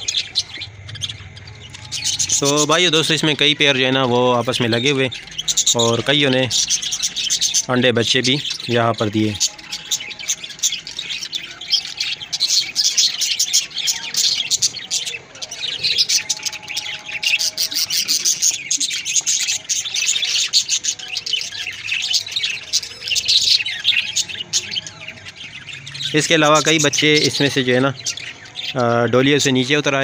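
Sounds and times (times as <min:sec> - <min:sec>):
budgerigars chattering: 0:00.0 - 0:30.0.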